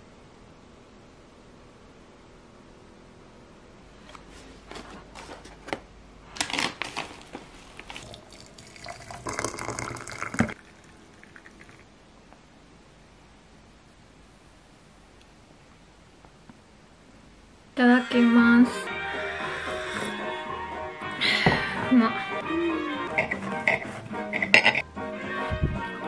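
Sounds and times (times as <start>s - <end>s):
water poured into teapot: 8.0s - 11.9s
kitchenware clinking: 23.1s - 24.8s.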